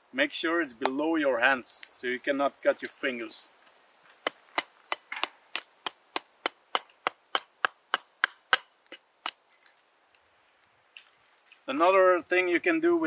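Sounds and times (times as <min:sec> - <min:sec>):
hatchet chopping wood: 0:04.2 - 0:09.4.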